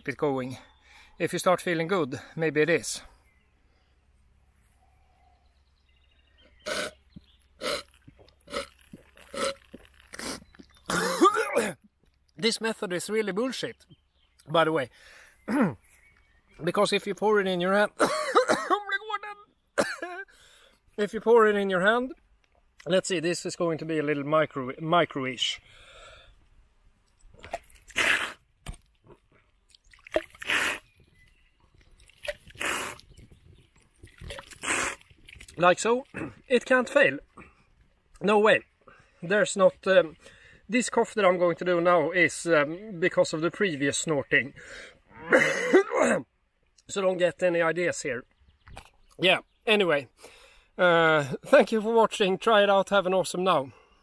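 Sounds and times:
man snorting liquid: 6.6s - 7.0s, 7.6s - 11.8s, 27.8s - 28.4s, 30.1s - 30.9s, 32.2s - 33.2s, 34.3s - 35.4s, 45.3s - 46.2s
liquid dripping: 29.6s - 30.6s.

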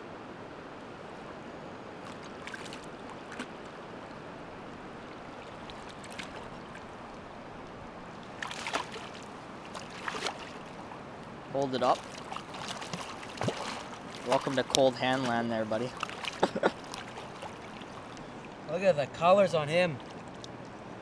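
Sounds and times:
river current flowing: 0.0s - 21.0s
fish thrashing and splashing: 2.0s - 4.2s, 4.8s - 7.2s, 8.2s - 10.9s, 11.8s - 18.3s.

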